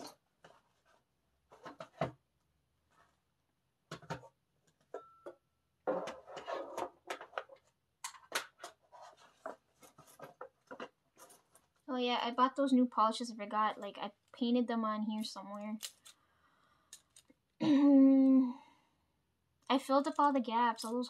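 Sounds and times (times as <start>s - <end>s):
small objects clicking and rattling: 16.9s - 17.4s.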